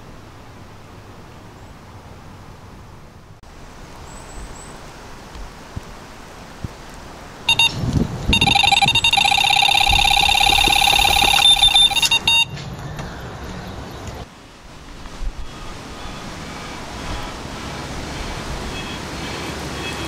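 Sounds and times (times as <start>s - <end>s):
bite alarm high beeps: 7.5s - 12.5s.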